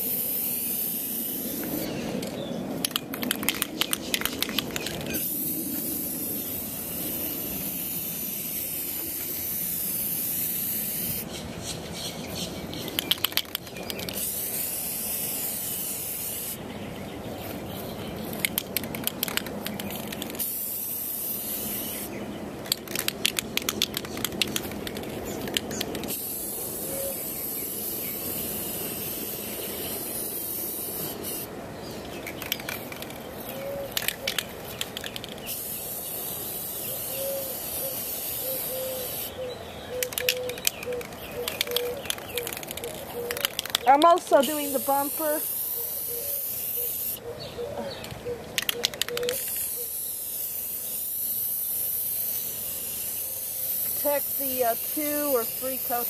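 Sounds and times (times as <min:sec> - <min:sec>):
aerosol can hissing: 0:00.0 - 0:01.9, 0:05.2 - 0:11.3, 0:14.0 - 0:16.6, 0:20.1 - 0:22.1, 0:26.0 - 0:31.5, 0:35.4 - 0:39.3, 0:44.3 - 0:47.2, 0:49.3 - 0:56.0
rapid sharp clicking: 0:02.8 - 0:05.2, 0:22.6 - 0:26.2.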